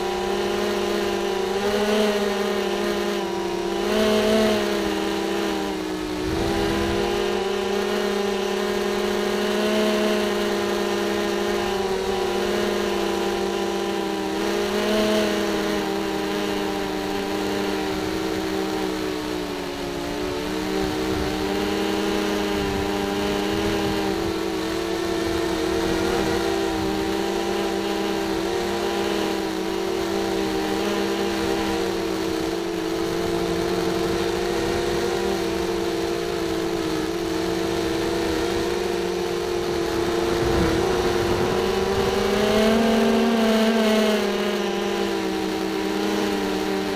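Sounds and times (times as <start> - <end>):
drone propellers whining: 0.0 - 46.9.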